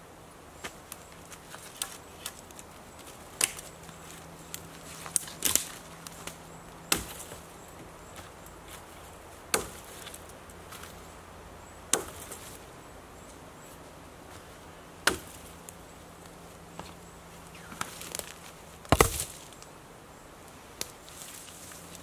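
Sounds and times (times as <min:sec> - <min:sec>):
hatchet chopping branch: 0:00.6 - 0:03.7, 0:04.5 - 0:07.4, 0:09.5 - 0:10.9, 0:11.9 - 0:12.5, 0:15.0 - 0:15.5, 0:17.6 - 0:19.6.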